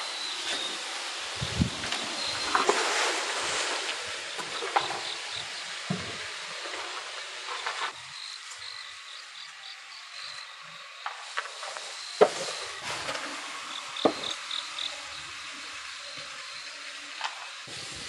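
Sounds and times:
insects chirping: 0.0s - 18.0s
pots rustling and clinking: 1.7s - 8.6s.

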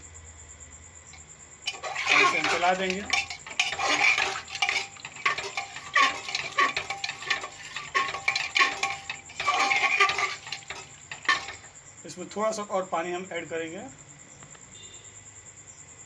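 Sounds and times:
metal spatula scraping a pot: 1.6s - 11.8s.

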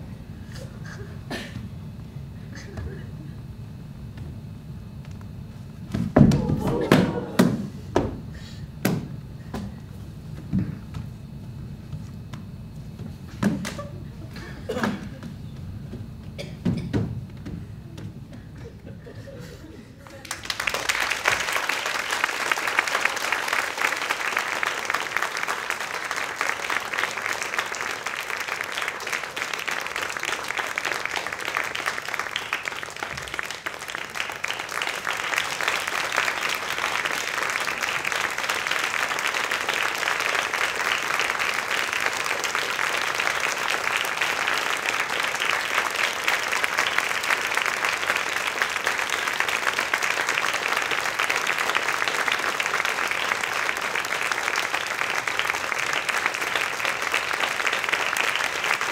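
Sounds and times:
audience applauding: 6.2s - 7.8s, 20.0s - 58.9s.

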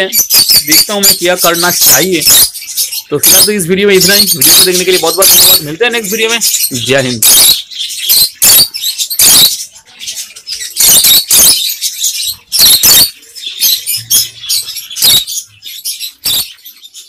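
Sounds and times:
lovebirds squeaky calls: 0.0s - 17.0s.

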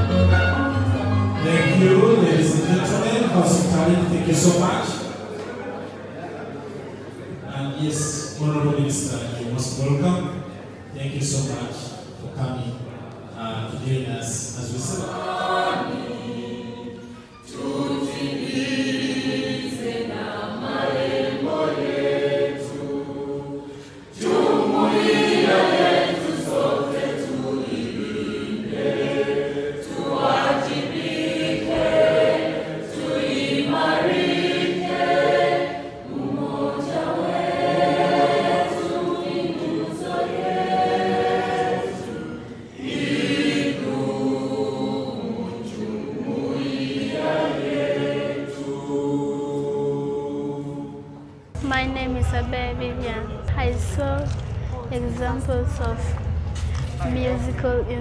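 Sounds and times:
group of voices singing: 14.7s - 51.5s.

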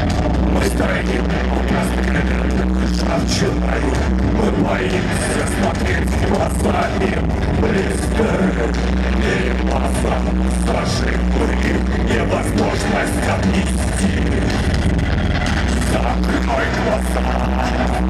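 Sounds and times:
heavy bass: 0.0s - 18.0s
live electronic rock music: 0.0s - 18.0s
drum beat: 11.5s - 18.0s.

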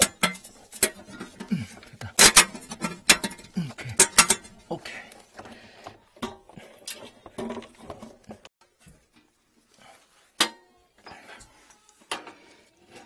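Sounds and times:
tools knocking and clinking on metal: 0.0s - 4.7s.

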